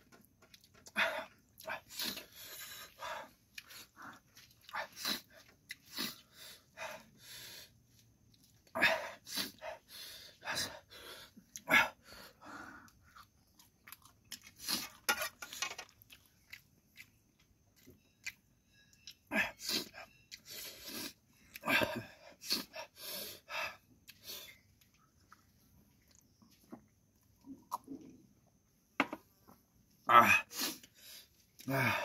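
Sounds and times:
chewing and crunching noodles: 0.0s - 28.6s.

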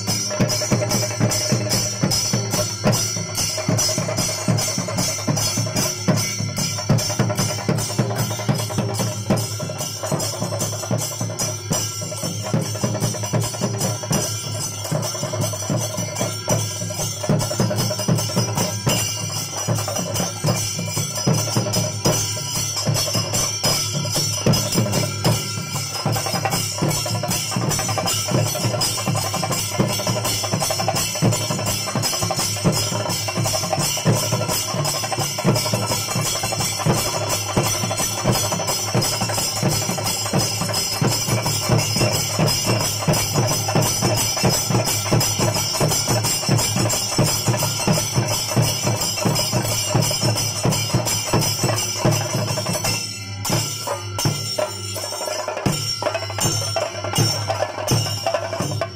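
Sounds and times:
cymbals clashing: 0.0s - 58.9s
drums struck with sticks: 0.0s - 58.9s.

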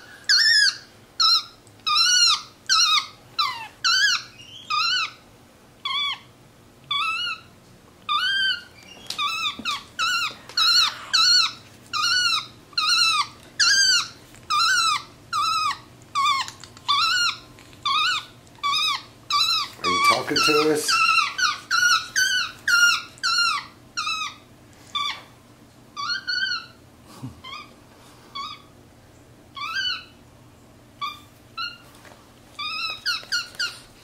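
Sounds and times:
monkey squeaky calls: 0.3s - 5.2s, 5.8s - 6.3s, 6.9s - 7.5s, 8.1s - 25.3s, 26.0s - 26.8s, 29.6s - 30.2s, 31.0s - 31.8s, 32.6s - 33.9s.

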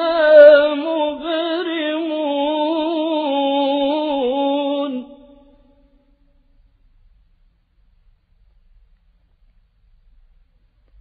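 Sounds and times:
man reciting melodically: 0.0s - 5.9s.

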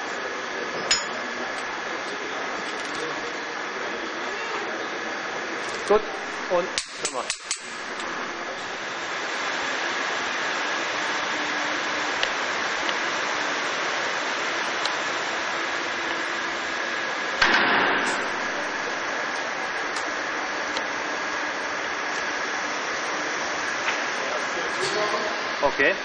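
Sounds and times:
machinery humming: 0.0s - 26.0s
loud bang: 17.4s - 18.8s.

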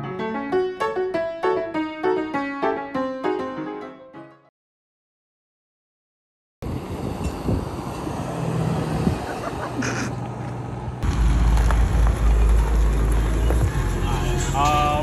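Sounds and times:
truck engine rumbling: 6.6s - 15.0s.

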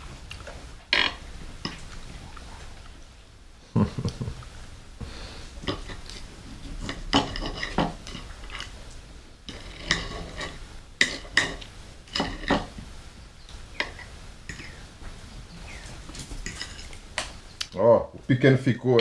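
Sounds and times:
tableware clinking and scraping: 0.9s - 1.9s, 5.6s - 8.8s, 9.5s - 12.8s, 13.7s - 14.8s, 15.6s - 17.0s.

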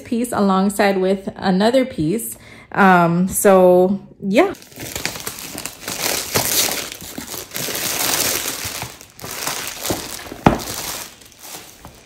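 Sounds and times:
packaging crinkling and rustling: 4.6s - 12.0s.

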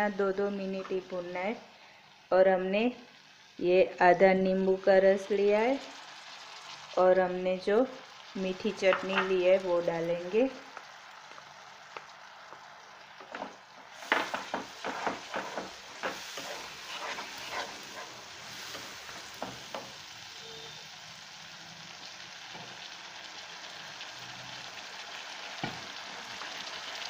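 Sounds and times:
spice paste sizzling in oil: 0.0s - 27.0s
wooden spatula scraping pan: 13.2s - 19.9s.

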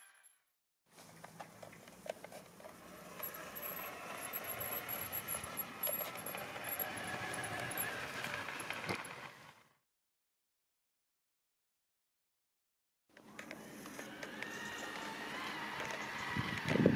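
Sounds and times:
model train motor whirring: 2.0s - 9.7s, 13.2s - 16.9s.

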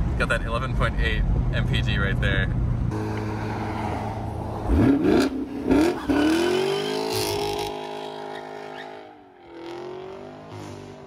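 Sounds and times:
car engine revving: 2.9s - 11.0s.

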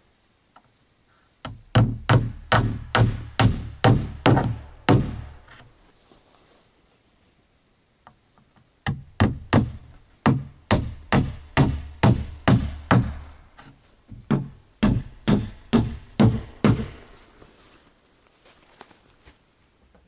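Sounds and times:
hammer striking nails into wood: 1.4s - 5.4s, 8.8s - 13.2s, 14.1s - 17.0s.

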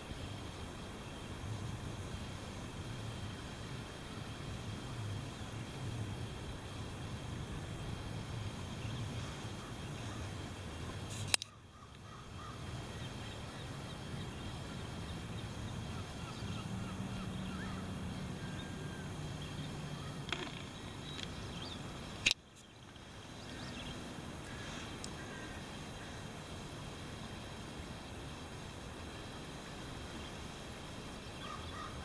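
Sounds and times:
low shoreline rumble: 0.0s - 31.4s
sharp click: 11.1s - 11.6s
faint bird chirps: 31.2s - 32.0s.

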